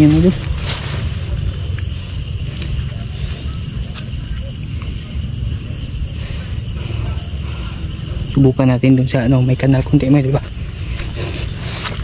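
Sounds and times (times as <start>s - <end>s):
crickets chirping: 0.0s - 12.0s
steady low rumble: 0.0s - 12.0s.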